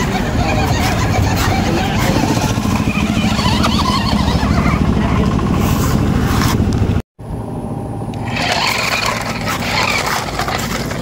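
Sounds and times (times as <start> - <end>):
toy truck motor humming: 0.0 - 5.3, 8.1 - 11.0.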